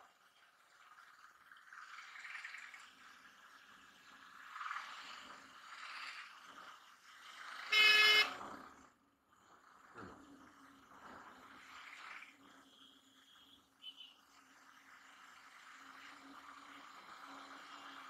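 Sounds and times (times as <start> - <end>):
motorcycle running: 0.0 - 18.0
street traffic: 0.0 - 18.0
vehicle horn honk: 7.7 - 8.4.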